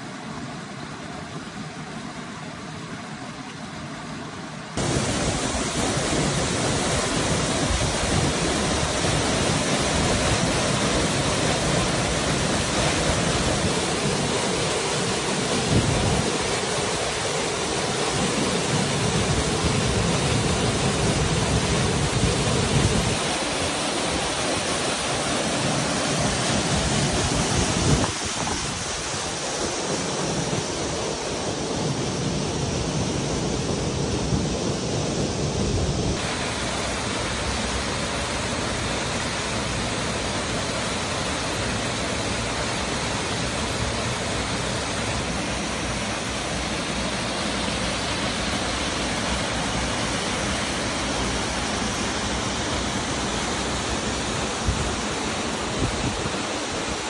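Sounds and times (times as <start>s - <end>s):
stream over rocky cascade: 0.0s - 57.0s
waterfall rushing into pool: 0.0s - 57.0s.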